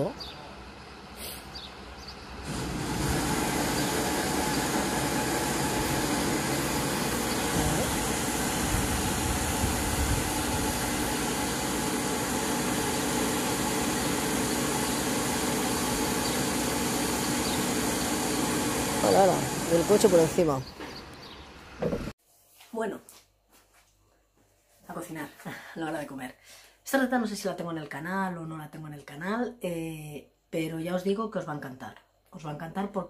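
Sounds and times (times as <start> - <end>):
spray machine hissing: 2.4 - 20.5.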